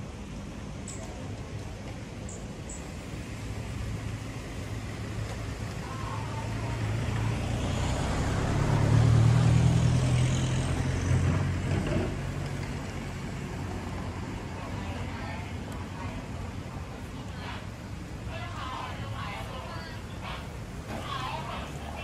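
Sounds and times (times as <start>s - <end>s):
street traffic noise: 0.0s - 22.0s
vehicle engine passing by: 3.8s - 14.7s.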